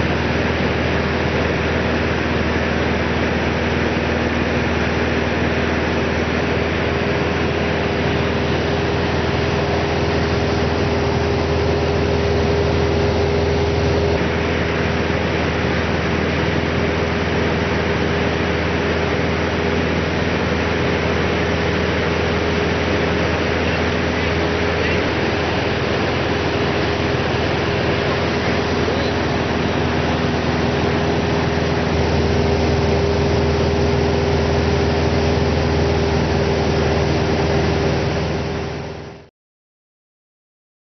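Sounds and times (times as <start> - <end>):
rush of air noise: 0.0 - 38.9
light aircraft engine droning: 0.0 - 39.2.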